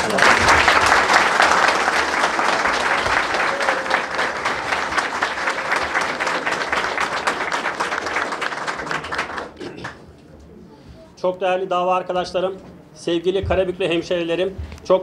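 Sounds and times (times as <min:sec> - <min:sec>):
audience applauding: 0:00.0 - 0:10.1.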